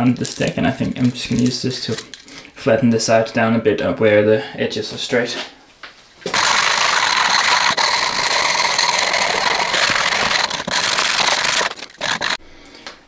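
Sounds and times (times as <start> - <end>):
sandpaper rasping on metal edge: 6.3 - 12.4.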